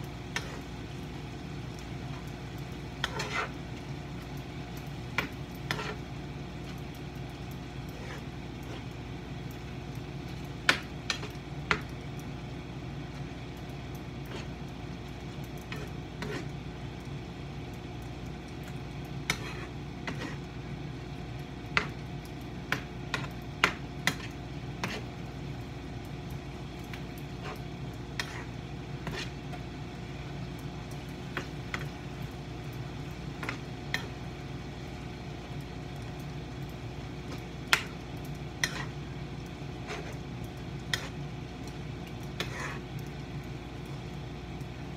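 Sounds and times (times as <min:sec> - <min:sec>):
food sizzling: 0:00.0 - 0:44.9
steady low hum: 0:00.0 - 0:44.9
spatula scraping frying pan: 0:00.3 - 0:00.8, 0:03.0 - 0:03.7, 0:05.1 - 0:06.1, 0:07.8 - 0:09.0, 0:14.2 - 0:14.6, 0:15.6 - 0:16.6, 0:19.2 - 0:20.5, 0:23.1 - 0:25.2, 0:27.2 - 0:29.7, 0:38.5 - 0:39.0, 0:39.7 - 0:41.2, 0:42.2 - 0:42.9.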